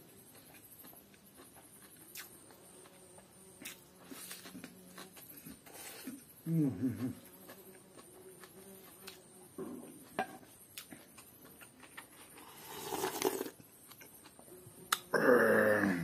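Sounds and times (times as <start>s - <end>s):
mouth clicks while chewing: 0.4s - 2.4s
slurp from a bowl: 12.3s - 13.6s.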